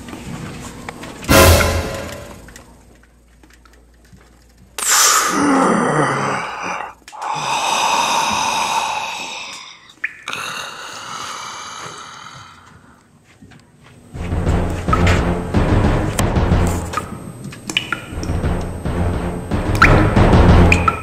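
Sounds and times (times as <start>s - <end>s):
heavy gasping breaths: 4.9s - 13.1s.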